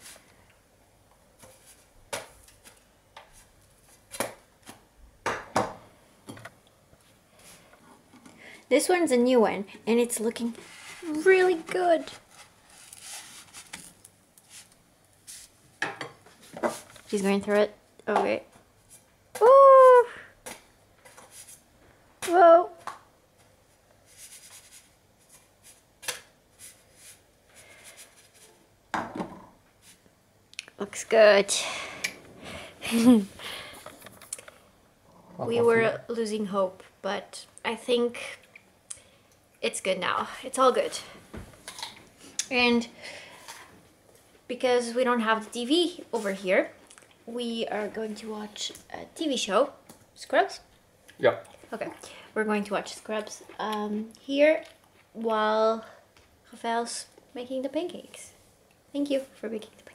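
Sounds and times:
pan sliding sounds: 10.4 - 13.7.

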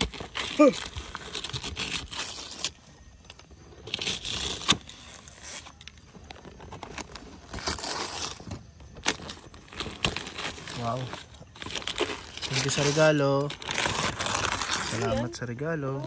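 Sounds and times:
wrapping paper tearing: 0.0 - 16.0.

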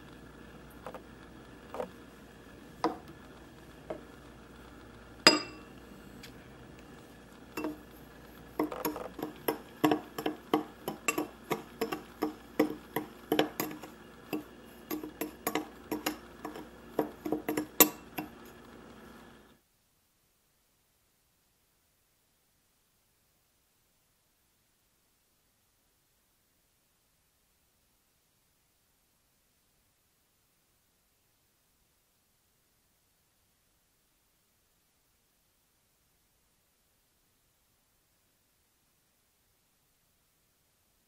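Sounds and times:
metal spoon clinking glass bowl: 5.3 - 5.7, 7.5 - 7.9, 8.6 - 18.4.

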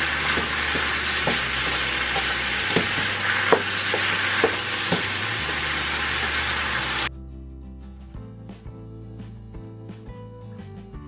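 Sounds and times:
food sizzling in a frying pan: 0.0 - 7.1
spatula knocking pan: 0.0 - 7.1.

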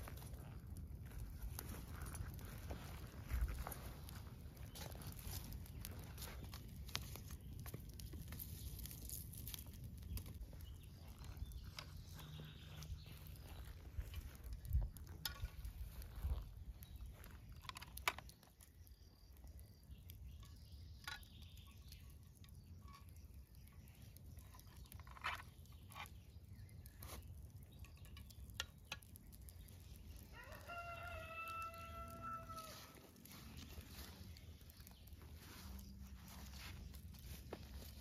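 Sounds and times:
rooster crowing: 30.3 - 33.1.

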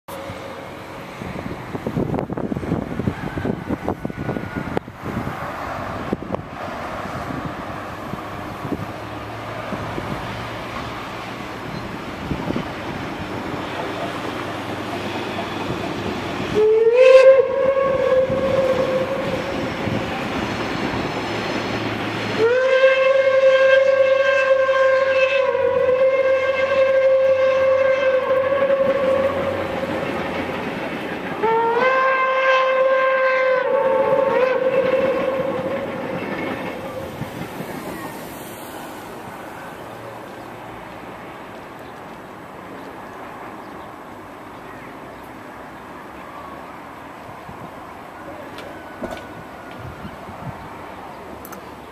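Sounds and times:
steam locomotive whistle blasts: 16.5 - 20.0, 22.3 - 29.7, 31.4 - 37.2.

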